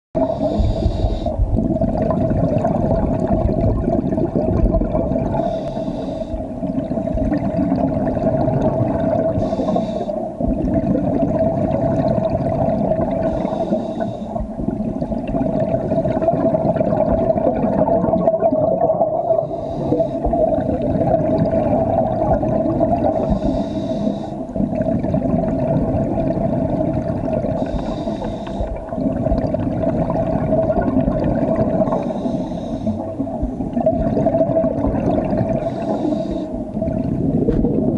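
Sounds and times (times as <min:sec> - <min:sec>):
regulator breathing underwater: 0:00.2 - 0:02.0, 0:05.2 - 0:10.6, 0:12.0 - 0:16.4, 0:18.8 - 0:21.6, 0:22.7 - 0:25.1, 0:26.9 - 0:30.0, 0:31.6 - 0:37.9
bubbling exhalations: 0:00.2 - 0:09.7, 0:14.4 - 0:23.6, 0:24.6 - 0:37.9.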